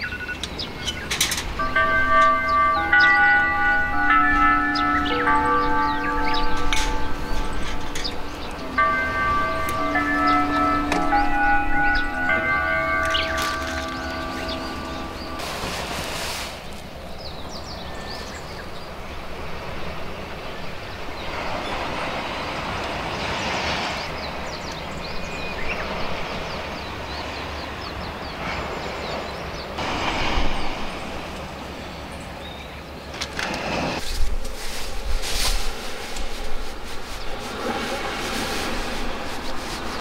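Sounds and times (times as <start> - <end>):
wind gusts on microphone: 0.4 - 40.0
outdoor rushing noise: 33.1 - 40.0.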